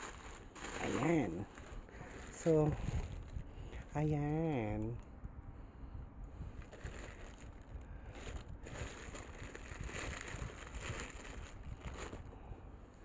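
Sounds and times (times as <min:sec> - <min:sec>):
plastic bag rustling: 0:00.0 - 0:03.9, 0:06.4 - 0:12.3.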